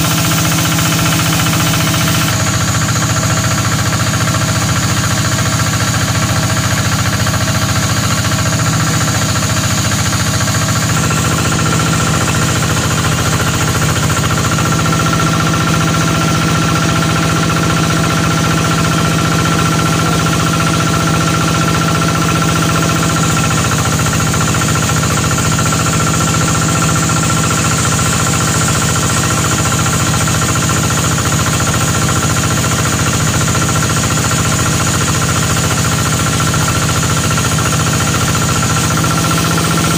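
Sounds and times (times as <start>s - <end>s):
saw blade cutting log: 0.0s - 2.4s, 8.2s - 17.6s
sawmill machine hum: 0.0s - 39.9s.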